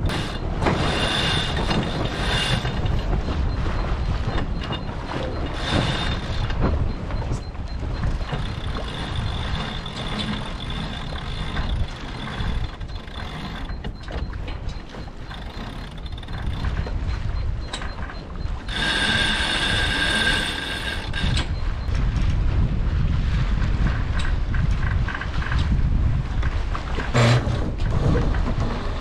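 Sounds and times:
winch ratchet clicking: 0:00.0 - 0:21.9
wind rumble on microphone: 0:00.0 - 0:29.0.

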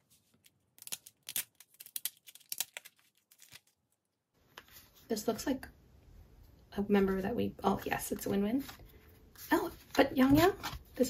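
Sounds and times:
card pack tearing open: 0:00.8 - 0:03.8.

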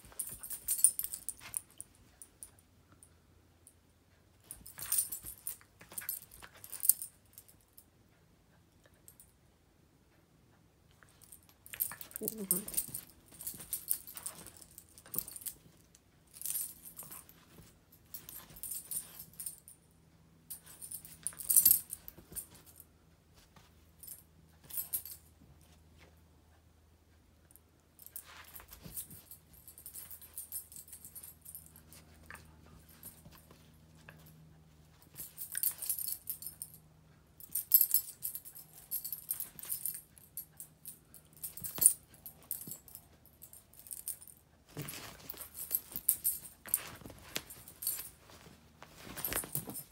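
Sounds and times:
metal dog tags jingling: 0:00.0 - 0:02.5, 0:04.4 - 0:07.6, 0:11.0 - 0:19.7, 0:20.5 - 0:22.8, 0:28.0 - 0:36.8, 0:37.4 - 0:49.9.

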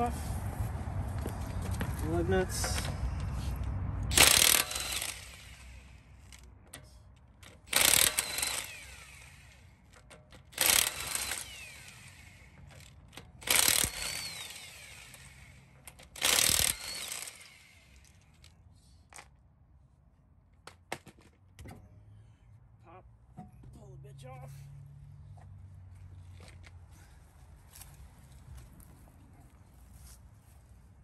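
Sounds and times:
impact wrench hammering: 0:04.1 - 0:05.8, 0:07.4 - 0:18.0.

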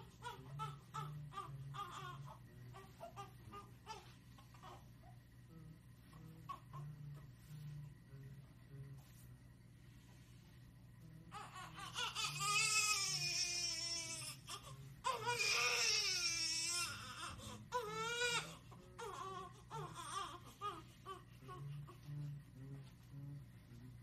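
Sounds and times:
newborn baby crying: 0:00.0 - 0:05.0, 0:11.3 - 0:21.9.

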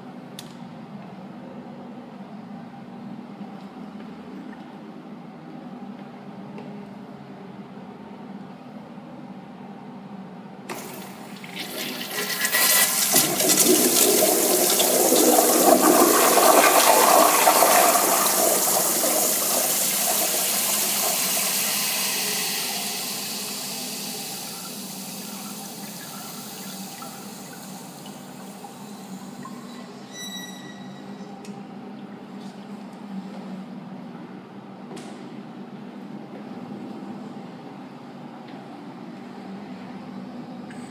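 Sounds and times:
toilet water rushing: 0:10.7 - 0:29.6.

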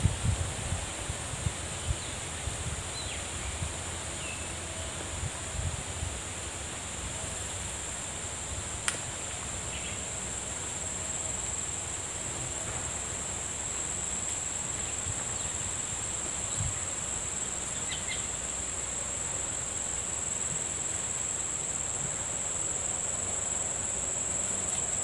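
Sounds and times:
insects droning: 0:00.1 - 0:25.0
sharp click: 0:08.8 - 0:09.0.

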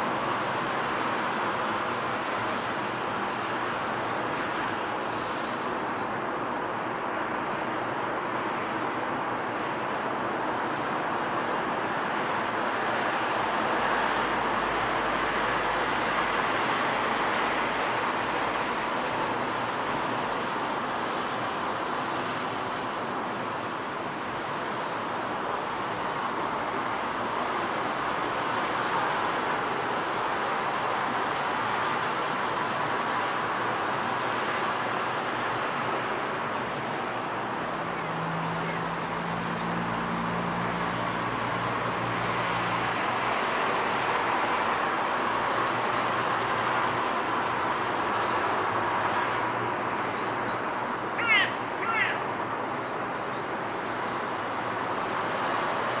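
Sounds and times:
distant traffic: 0:00.0 - 0:56.0
high bird chirps: 0:51.2 - 0:52.3.

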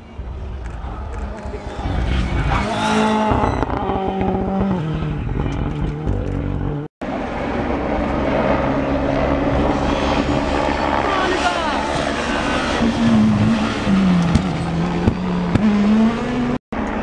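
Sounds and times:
distant rally car engine: 0:00.0 - 0:17.0
rally car passing at speed: 0:00.9 - 0:05.3.

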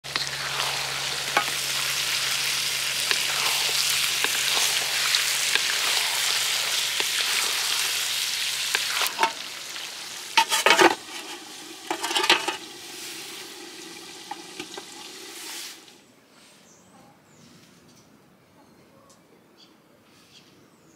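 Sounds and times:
food sizzling in a pan: 0:00.0 - 0:16.0.

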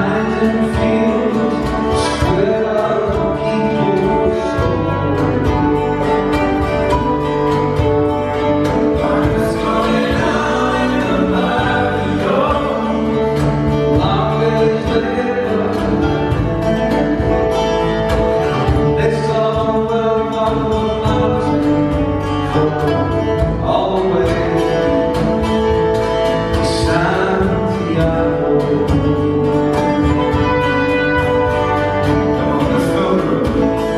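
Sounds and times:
voices singing: 0:00.0 - 0:25.4
strummed guitars: 0:00.0 - 0:33.9
trumpet: 0:29.7 - 0:33.9.

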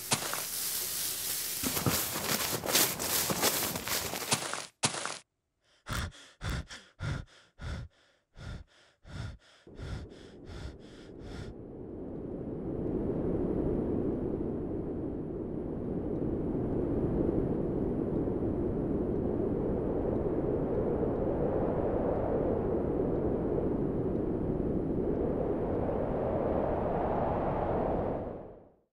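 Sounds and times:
steady rushing noise: 0:00.0 - 0:04.5, 0:06.0 - 0:28.5
cartoon footsteps: 0:00.0 - 0:05.2, 0:05.9 - 0:11.5.

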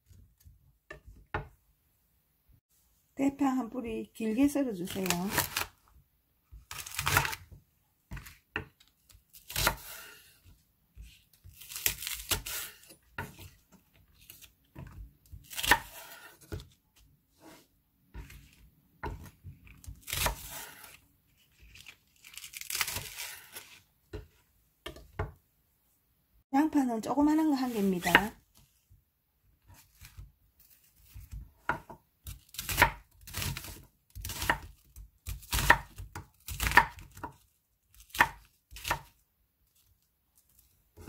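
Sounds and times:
knife slicing through leek: 0:09.3 - 0:13.6, 0:15.3 - 0:16.8, 0:17.4 - 0:24.3, 0:27.4 - 0:28.4.

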